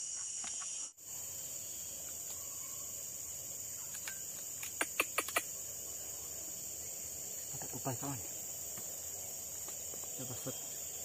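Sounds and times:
forest insects droning: 0.0s - 11.0s
sharp clicks: 3.9s - 5.5s.

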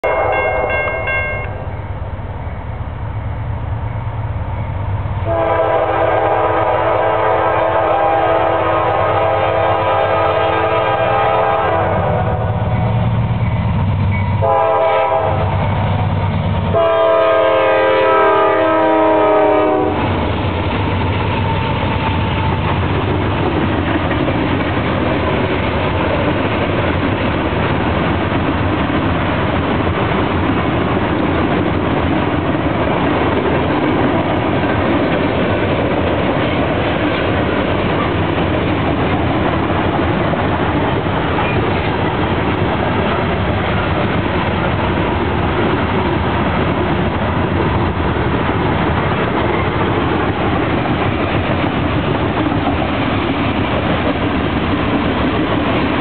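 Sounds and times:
locomotive horn blasts: 0.0s - 1.7s, 5.2s - 12.7s, 14.4s - 15.6s, 16.7s - 20.0s
wheels rushing on rail: 0.0s - 56.0s.

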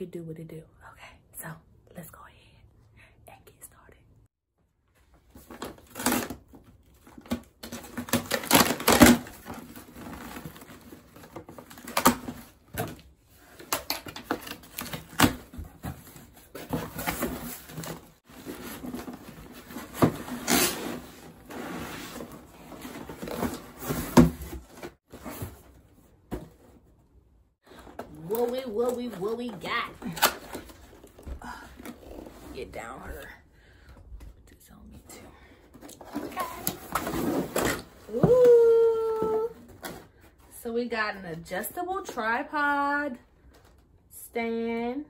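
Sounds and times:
cardboard scraping and rustling: 5.3s - 26.9s, 36.0s - 38.1s
packing tape tearing: 7.2s - 10.9s.

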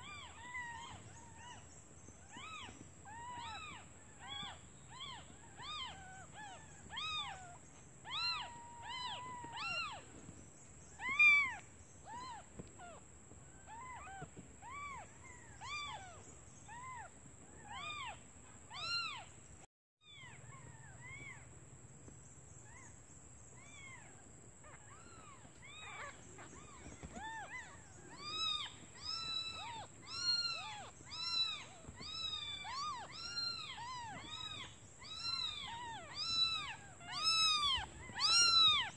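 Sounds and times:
kittens mewing: 24.7s - 38.9s.

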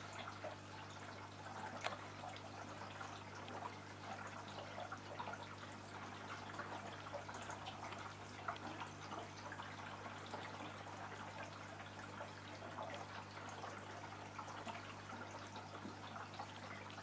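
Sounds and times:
small water splashes: 0.0s - 17.0s
water trickling and dripping: 0.0s - 17.0s.

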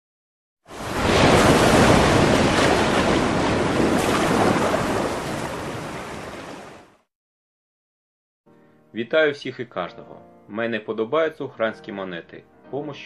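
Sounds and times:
sea surf and wind rushing: 0.7s - 7.0s.

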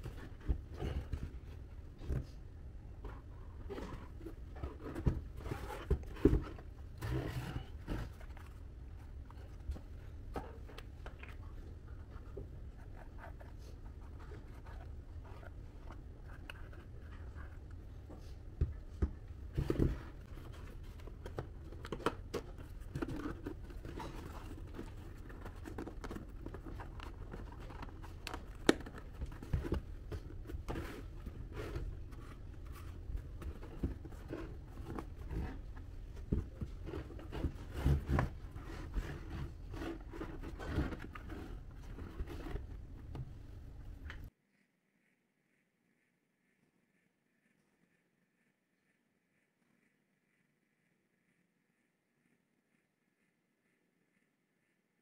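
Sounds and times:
cardboard being handled: 0.0s - 44.3s.

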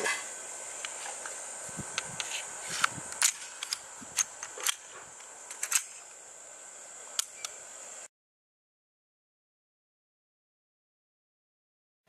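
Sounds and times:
faint high hiss: 0.0s - 8.1s.

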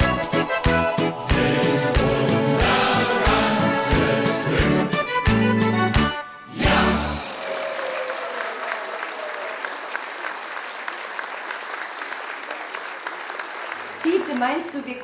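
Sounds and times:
audience applauding: 6.7s - 15.0s.

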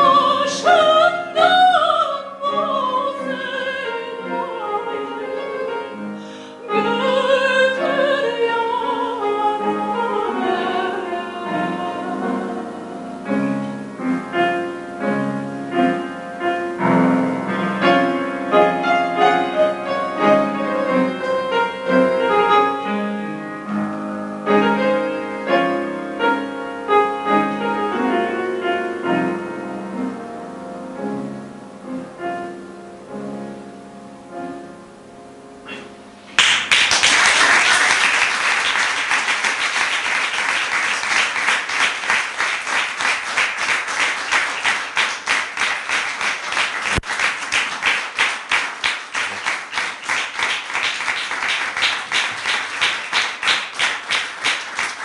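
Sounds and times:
solo piano: 0.0s - 36.4s
audience applause: 36.4s - 55.0s.

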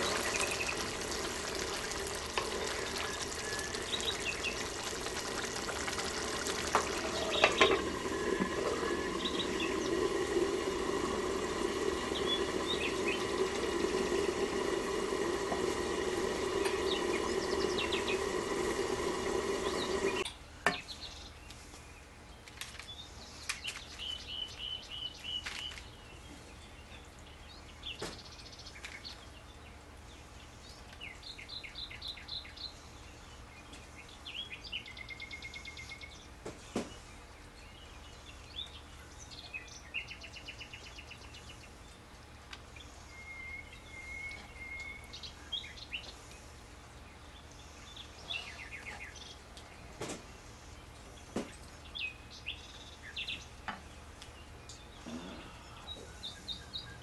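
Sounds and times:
steady low hum: 0.0s - 22.4s
songbirds chirping and trilling: 0.0s - 57.0s.

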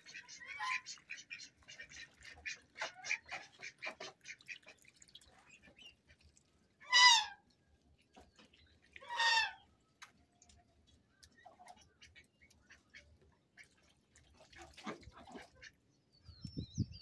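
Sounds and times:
ducks and geese calling: 0.0s - 4.8s, 6.8s - 7.4s, 9.0s - 9.7s.

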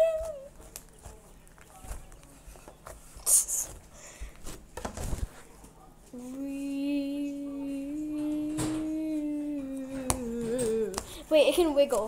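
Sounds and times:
girl humming a steady note: 6.2s - 11.2s.

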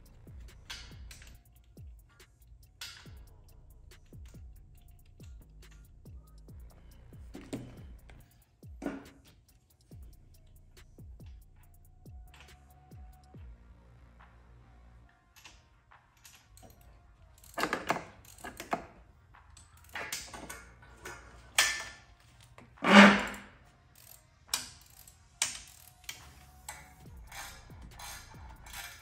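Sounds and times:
clicks and knocks of hands working: 15.3s - 29.0s.

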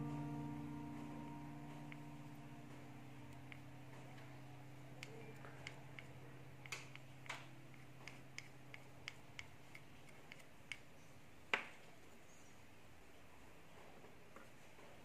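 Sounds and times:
plastic spoon clicking on steel bowls: 4.9s - 10.9s.

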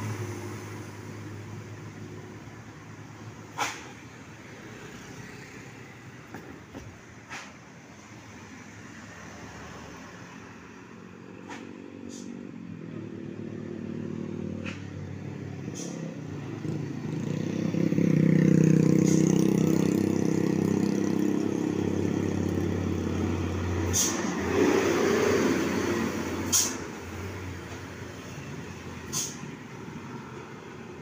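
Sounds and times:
car and motorcycle engines: 0.0s - 31.0s
truck engine approaching: 10.1s - 31.0s.

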